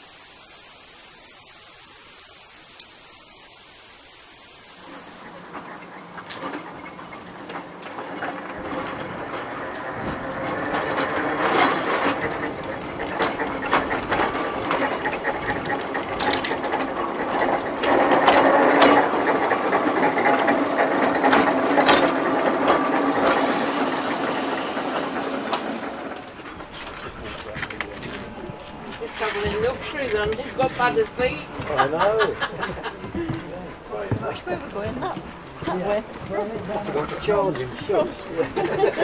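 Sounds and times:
tram rumble: 0:05.2 - 0:39.0
tram wheels clanking on rails: 0:05.3 - 0:39.0.

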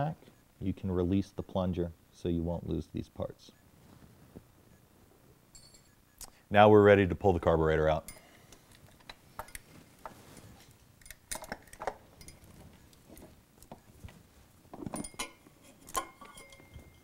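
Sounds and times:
metal parts clinking and knocking: 0:05.6 - 0:05.9, 0:11.0 - 0:12.5, 0:14.8 - 0:17.0.

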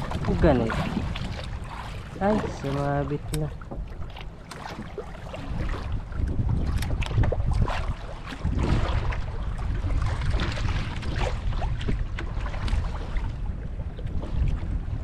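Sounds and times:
water slapping against hull: 0:00.0 - 0:15.0
wind buffeting microphone: 0:00.0 - 0:15.0.

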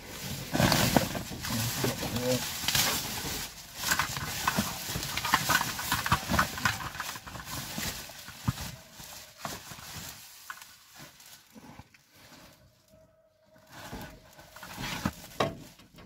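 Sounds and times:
plastic bags crinkling and rustling: 0:00.0 - 0:16.0.

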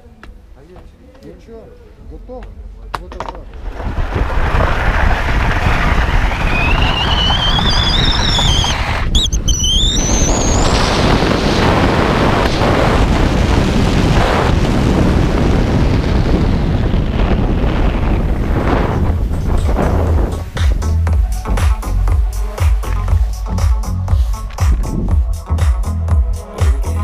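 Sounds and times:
wind rushing over microphone: 0:03.5 - 0:25.4
rising whistle: 0:04.6 - 0:11.4.

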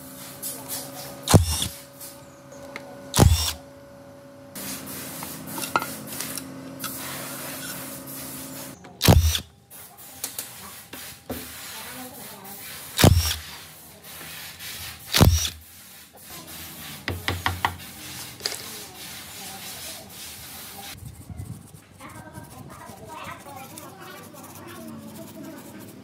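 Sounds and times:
steady low hum: 0:00.0 - 0:09.6
power drill bursts: 0:01.2 - 0:01.7, 0:03.2 - 0:03.6, 0:09.0 - 0:09.4, 0:13.0 - 0:13.5, 0:15.1 - 0:15.6.

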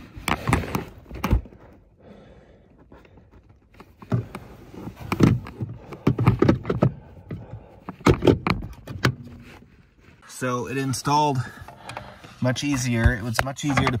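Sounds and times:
plastic knocks and clunks: 0:03.5 - 0:09.4, 0:12.7 - 0:14.0.

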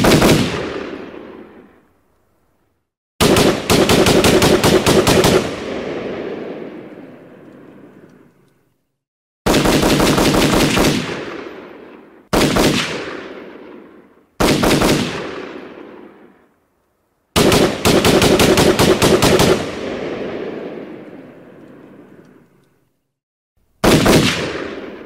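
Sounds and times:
rifle firing rapid shots: 0:00.0 - 0:01.4, 0:03.2 - 0:06.8, 0:09.5 - 0:13.8, 0:14.4 - 0:16.1, 0:17.4 - 0:20.9, 0:23.8 - 0:25.0.

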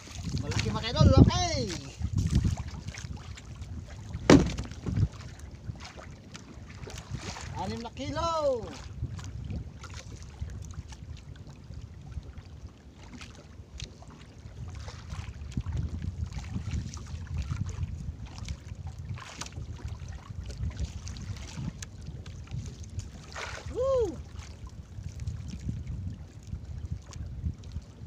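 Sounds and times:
water sloshing against boat hull: 0:00.0 - 0:28.0
wind buffeting microphone: 0:00.0 - 0:28.0
knocks and clicks on deck: 0:04.3 - 0:05.0.

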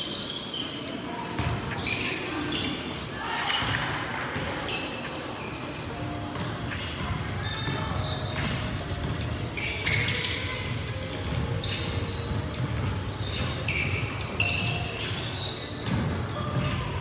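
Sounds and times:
sneakers squeaking: 0:00.0 - 0:17.0
basketball bouncing on wooden court: 0:01.4 - 0:01.7, 0:06.3 - 0:17.0.

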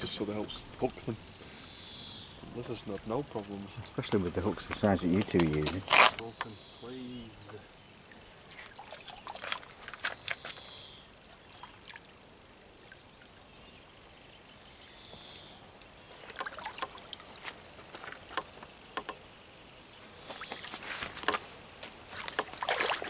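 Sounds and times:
water splashing from thrashing fish: 0:22.2 - 0:23.0.

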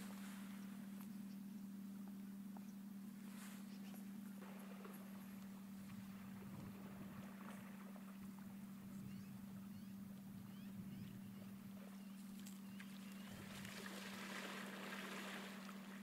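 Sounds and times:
steady low hum: 0:00.0 - 0:16.0
bear splashing in water: 0:13.3 - 0:16.0.

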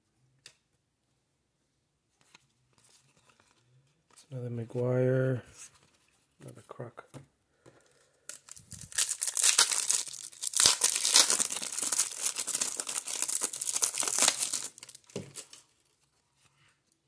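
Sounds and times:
foil wrapper tearing and crinkling: 0:08.3 - 0:15.6.

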